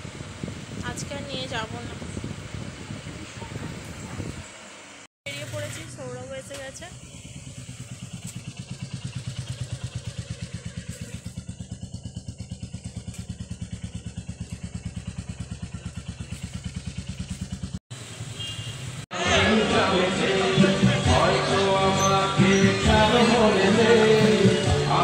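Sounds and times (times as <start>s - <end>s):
motorcycle engine idling: 0.0s - 19.0s.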